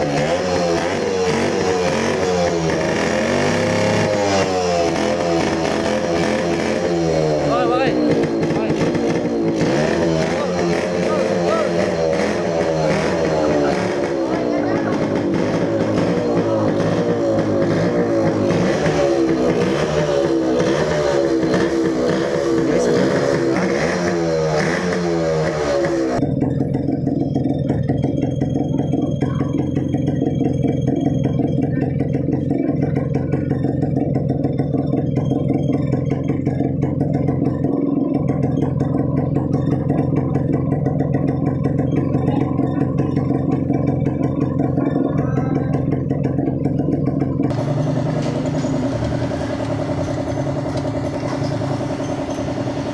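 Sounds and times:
two-stroke motorcycle engine: 0.0s - 52.9s.

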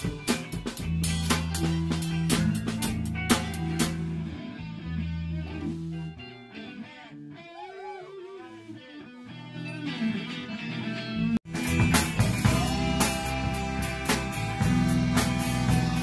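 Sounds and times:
drum kit: 0.0s - 6.1s, 11.5s - 16.0s
bass guitar: 0.0s - 16.0s
electric guitar lead with bends: 0.0s - 16.0s.

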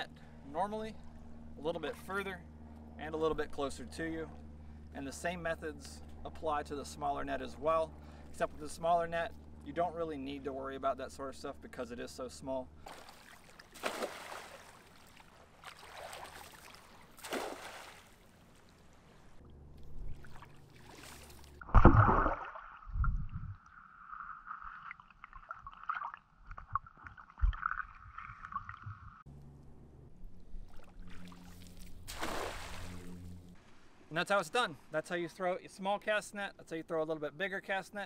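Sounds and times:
cast net splashing on water: 12.8s - 18.8s, 20.1s - 22.9s, 30.7s - 33.1s.

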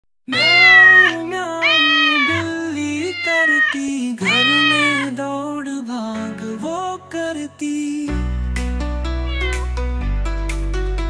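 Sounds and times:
cat meowing: 0.3s - 5.1s, 9.2s - 9.7s
music track: 8.1s - 11.0s.

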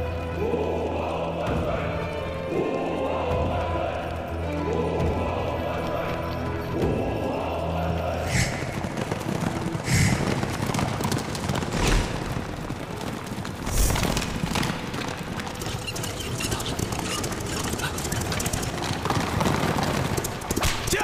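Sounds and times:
horses galloping hoofbeats: 0.0s - 21.0s.

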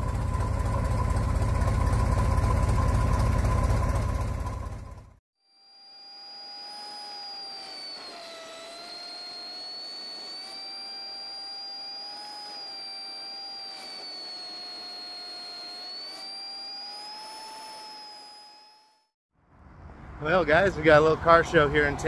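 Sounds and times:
bus driving with engine whine: 19.4s - 22.0s.

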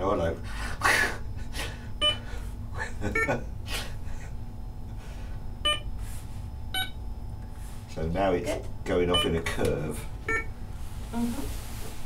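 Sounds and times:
short electronic beeps: 9.1s - 9.4s, 10.3s - 10.5s.

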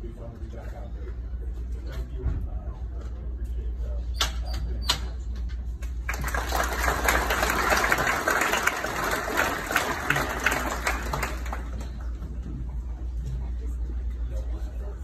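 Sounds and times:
audience applauding: 6.1s - 12.2s.

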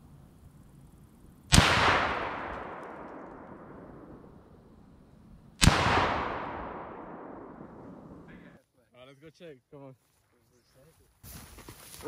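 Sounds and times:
rifle shot with echo: 1.5s - 4.9s, 5.6s - 8.4s.

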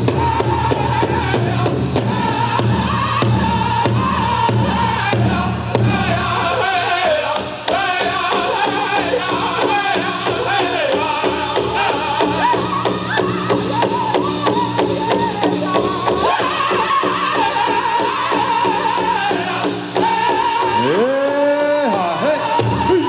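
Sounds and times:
fast big drum beat: 0.0s - 23.0s
voices singing in high pitch: 6.2s - 19.8s.

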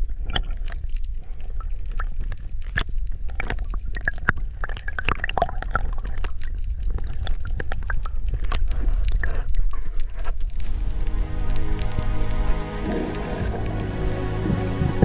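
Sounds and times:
small splashes and clicks: 0.0s - 13.7s
water sloshing and gurgling: 0.0s - 15.0s
steady low rumble: 10.5s - 15.0s.

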